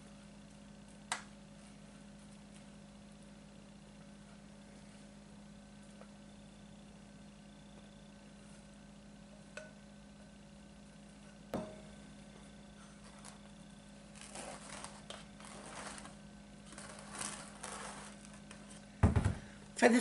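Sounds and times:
glass bowl knock: 11.6s - 11.9s
spatula scraping batter: 14.2s - 18.4s.

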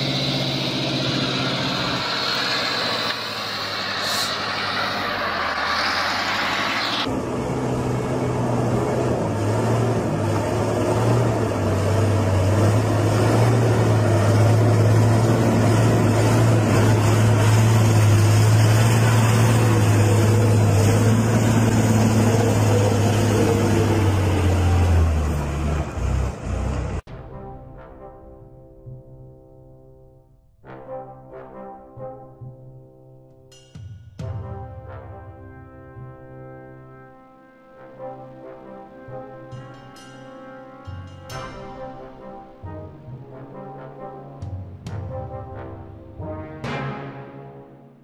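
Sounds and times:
deep diesel engine drone: 0.0s - 27.1s
truck climbing rising pitch: 0.0s - 27.1s.

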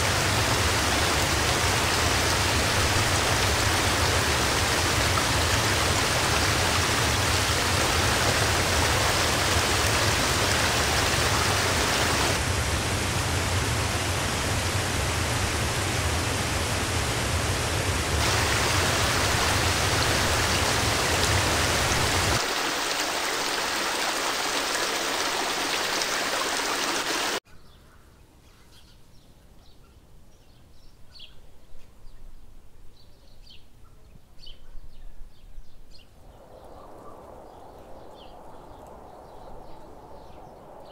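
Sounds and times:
waterfall roaring: 0.0s - 27.4s.

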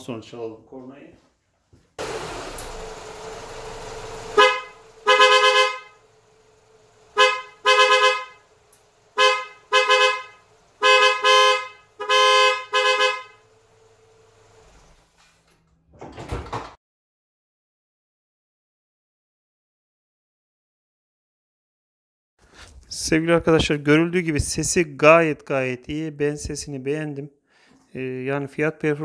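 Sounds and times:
car engine idling: 2.0s - 15.1s
car horn blasts: 4.1s - 14.0s.

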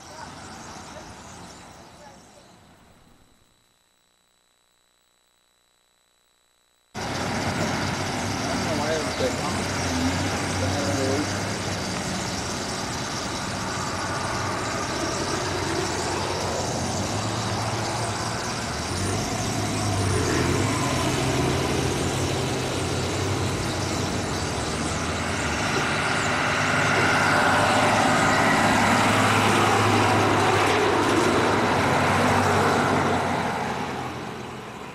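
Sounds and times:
flock of birds chattering: 0.0s - 3.3s, 7.0s - 31.2s
road traffic hum: 0.0s - 3.3s, 7.0s - 34.9s.

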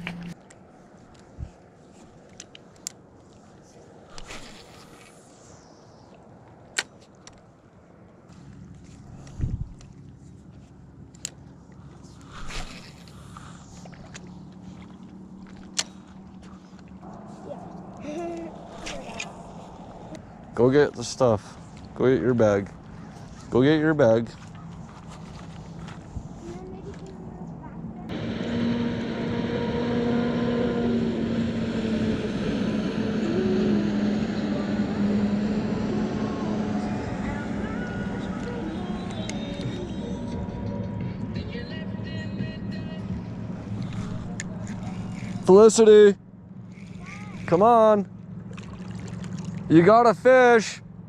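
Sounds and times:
motorboat engine drone: 0.0s - 0.4s, 8.4s - 26.4s, 27.0s - 51.0s
fishing rod swish: 4.1s - 5.8s, 12.1s - 14.9s, 18.5s - 20.1s.

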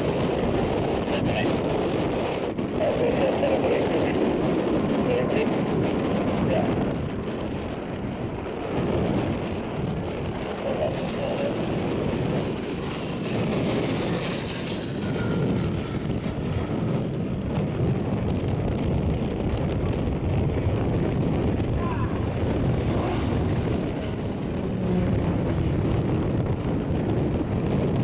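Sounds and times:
propeller aircraft drone: 0.0s - 28.0s
high whine falling in pitch: 19.6s - 27.4s.

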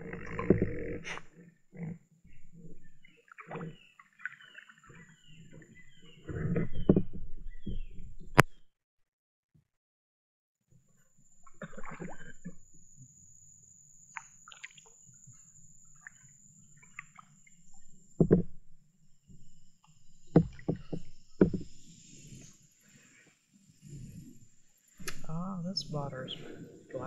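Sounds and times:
kayak paddle splashing in water: 3.0s - 6.9s, 14.1s - 15.0s, 20.0s - 22.7s.

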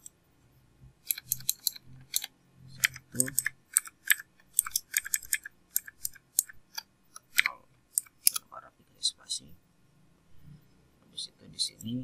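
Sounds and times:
typing on a computer keyboard: 1.0s - 8.4s.

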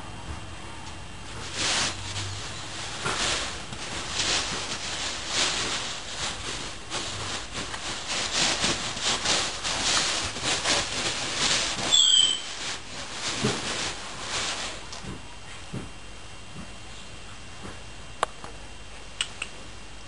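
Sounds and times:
beanbag fabric rustling: 1.3s - 14.9s.

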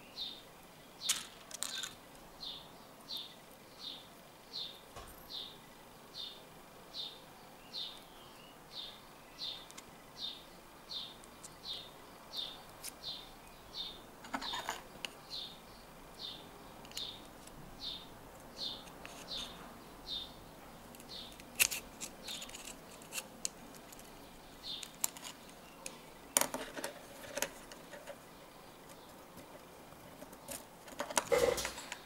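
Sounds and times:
small bird chirping: 0.0s - 30.7s
metal parts clicking: 1.1s - 2.0s, 21.0s - 24.1s.

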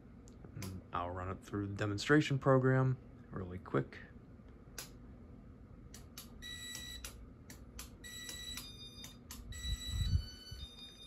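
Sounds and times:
sharp clicks: 4.8s - 5.0s, 5.9s - 9.5s.

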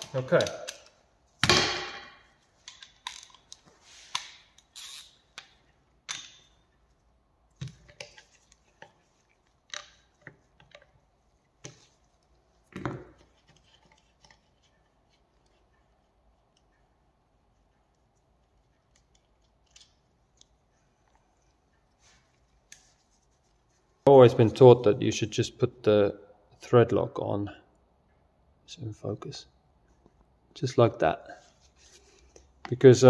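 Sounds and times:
wrench loosening nuts: 4.6s - 5.5s.

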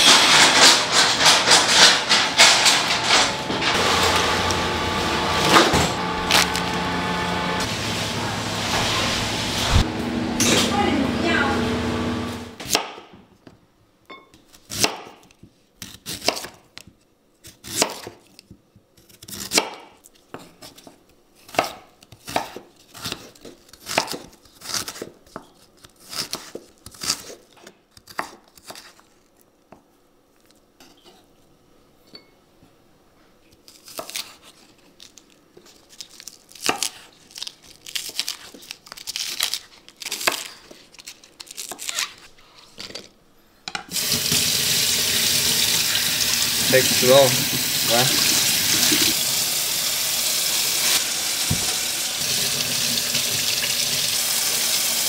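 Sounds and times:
loud sound with steady hum: 0.1s - 12.6s
knife chopping on cutting board: 12.6s - 13.1s, 14.7s - 15.2s, 19.2s - 19.9s, 21.5s - 25.1s.

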